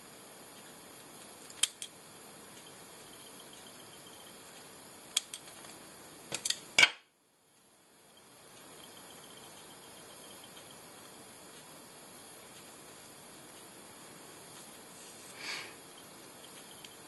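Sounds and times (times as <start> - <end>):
faint steady hiss: 0.0 - 17.0
small sharp tool clicks: 1.5 - 2.0, 5.1 - 5.6.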